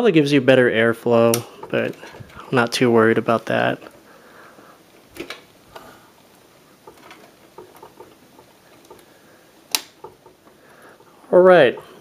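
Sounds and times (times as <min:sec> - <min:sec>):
fingers tapping and scraping: 0:06.8 - 0:12.0
sharp plastic click: 0:09.7 - 0:10.2.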